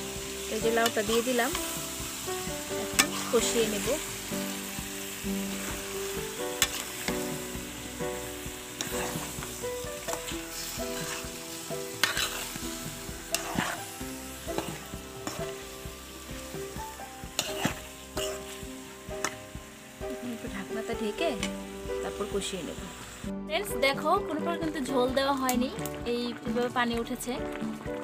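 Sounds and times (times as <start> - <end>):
vegetables sizzling in oil: 0.0 - 28.0
metal spatula scraping pan: 2.7 - 4.7, 5.4 - 7.6, 8.6 - 15.8, 16.6 - 19.4.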